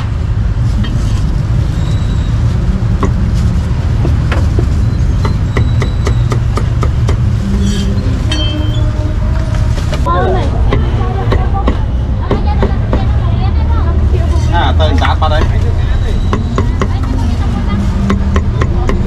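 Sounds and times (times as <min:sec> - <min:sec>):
street traffic rumble: 0:00.0 - 0:19.0
cleaver chopping meat on wood: 0:05.2 - 0:07.3.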